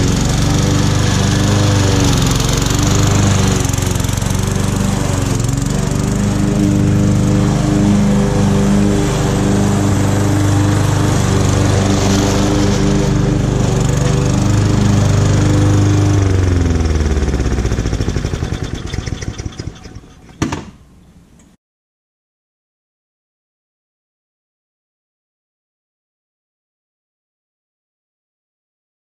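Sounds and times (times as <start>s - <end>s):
lawn mower engine running: 0.0s - 21.5s
sharp knock: 20.3s - 20.8s.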